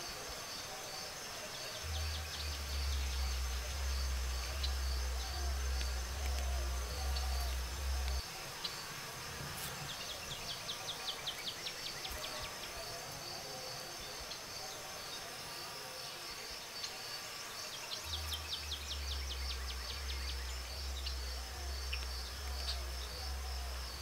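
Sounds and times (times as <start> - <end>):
insects buzzing: 0.0 - 24.0
low rumble: 1.9 - 8.2.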